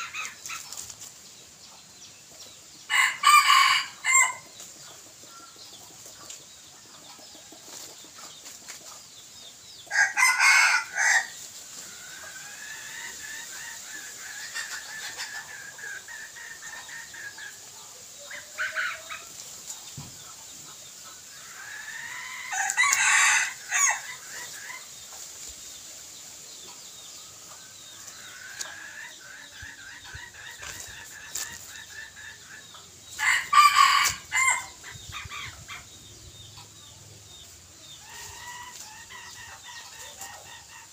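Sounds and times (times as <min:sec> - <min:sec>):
quiet rooster calls: 0:02.9 - 0:04.4, 0:33.2 - 0:34.7
rooster crowing: 0:02.9 - 0:04.4, 0:09.9 - 0:11.3, 0:21.8 - 0:24.0, 0:33.2 - 0:34.7.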